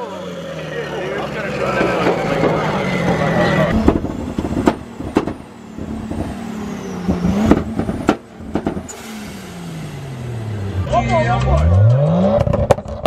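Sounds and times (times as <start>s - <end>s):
car engine running: 0.0s - 13.0s
sharp bangs: 1.7s - 10.0s.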